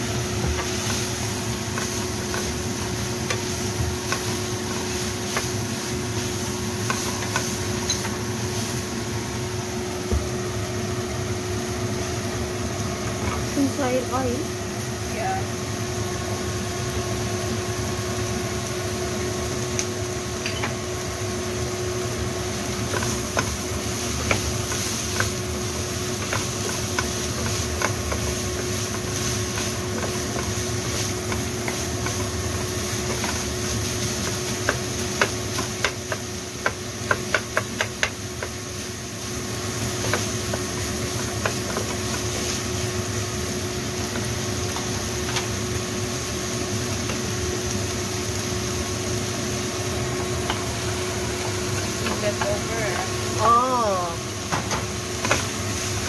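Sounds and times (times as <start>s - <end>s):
wooden spatula stirring in frying pan: 0.0s - 10.1s, 21.5s - 53.5s, 54.3s - 56.0s
spatula knocking against pan: 34.6s - 38.6s.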